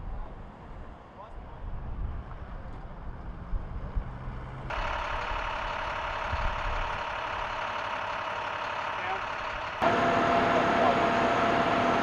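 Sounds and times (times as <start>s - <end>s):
emergency vehicles idling: 2.4s - 12.0s.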